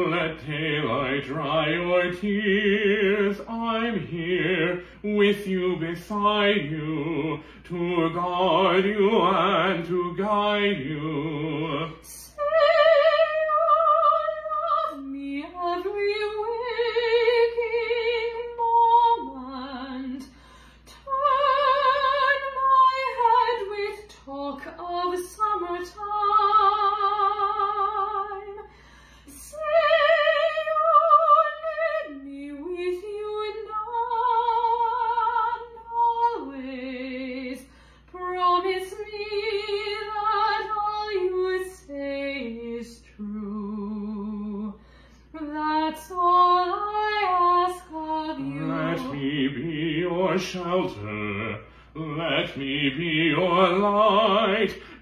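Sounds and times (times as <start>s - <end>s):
woman singing soprano ballad: 0.0s - 51.5s
singer breathing: 4.8s - 5.1s, 7.4s - 7.6s, 20.2s - 21.0s, 28.6s - 29.4s, 37.6s - 38.2s, 44.8s - 45.4s, 51.6s - 52.0s, 54.7s - 55.0s.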